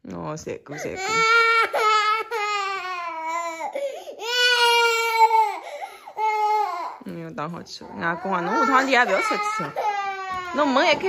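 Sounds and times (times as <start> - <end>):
toddler crying: 0.8 - 7.0, 8.0 - 11.0
toddler sobbing breaths: 3.5 - 4.2, 5.5 - 6.3.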